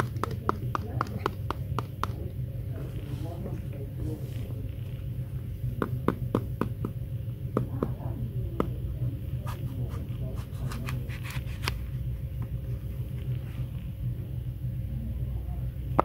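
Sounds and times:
steady low hum: 0.0 - 16.0
knife cutting crisp apple: 10.4 - 11.8.

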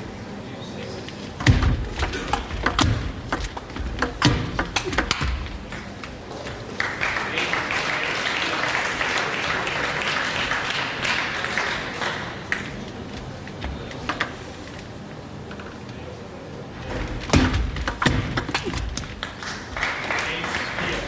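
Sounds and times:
spectators applauding: 6.7 - 12.5, 19.2 - 21.0.

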